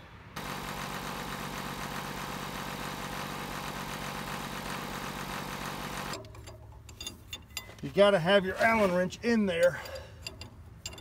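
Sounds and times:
backhoe engine idling: 0:00.4 - 0:06.2.

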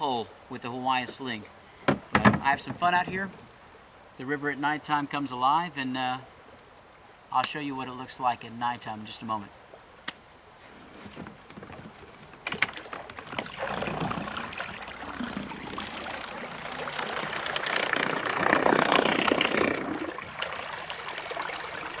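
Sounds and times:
propeller churning water: 0:11.1 - 0:22.0.

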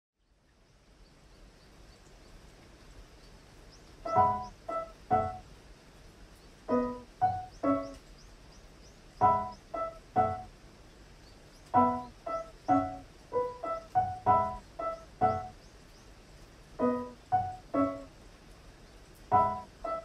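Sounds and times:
faint hiss: 0:00.2 - 0:20.0
slow solo piano: 0:04.0 - 0:05.5, 0:06.7 - 0:08.0, 0:09.2 - 0:10.5, 0:11.7 - 0:15.6, 0:16.8 - 0:18.2, 0:19.2 - 0:20.0.

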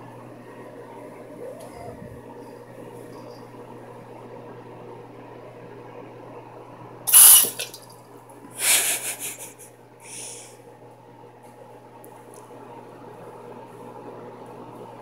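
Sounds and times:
steady low hum: 0:00.0 - 0:15.0
faucet water splashing into sink: 0:07.1 - 0:07.9.

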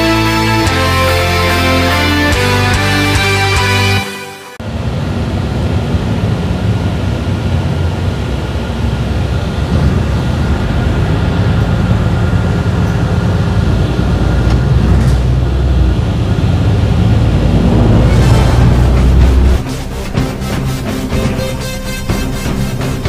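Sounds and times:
transit vehicle low rumble: 0:04.6 - 0:23.0.

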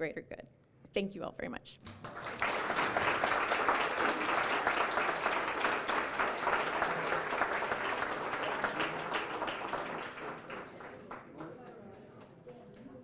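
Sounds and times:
audience applauding: 0:01.9 - 0:12.3.

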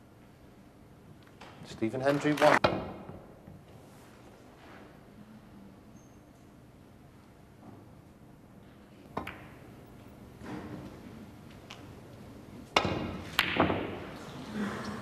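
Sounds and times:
snooker balls clicking: 0:08.6 - 0:10.2
cue striking snooker ball: 0:12.7 - 0:14.2.

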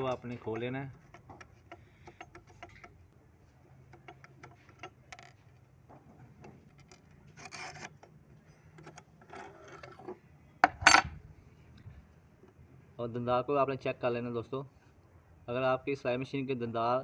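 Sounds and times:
metal clicks and scrapes: 0:00.0 - 0:11.1.

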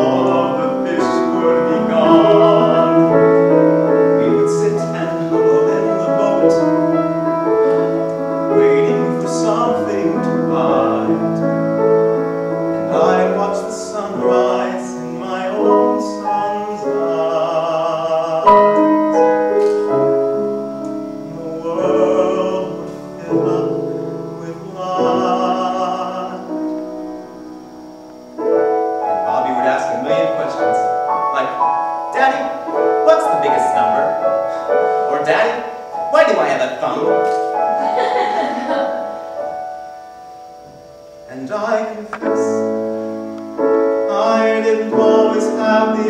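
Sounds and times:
man singing a ballad: 0:00.0 - 0:06.9, 0:07.8 - 0:11.6, 0:12.8 - 0:19.8, 0:21.0 - 0:27.0, 0:41.3 - 0:42.7, 0:44.0 - 0:46.0
grand piano: 0:00.0 - 0:46.0.

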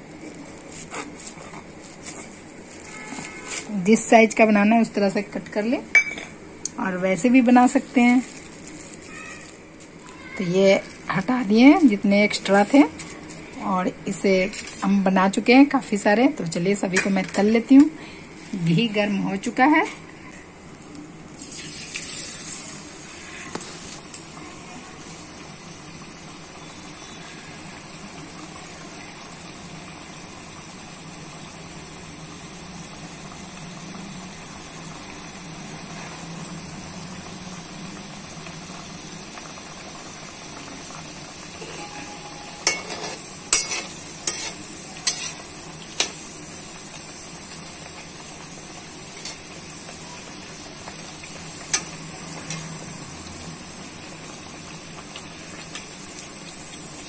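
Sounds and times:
puri sizzling in hot oil: 0:00.0 - 0:57.0
spoon clicking and scraping metal pan: 0:42.6 - 0:45.4.

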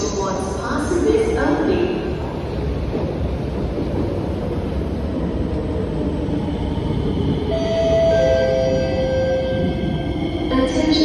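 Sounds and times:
train wheels rumbling on rails: 0:00.0 - 0:11.0
train braking whine: 0:07.3 - 0:10.8.

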